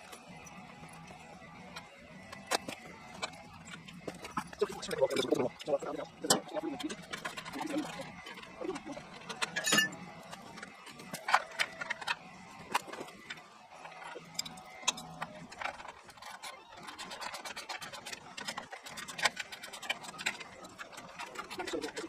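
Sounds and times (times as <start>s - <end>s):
ringing metal strikes: 9.6s - 10.0s.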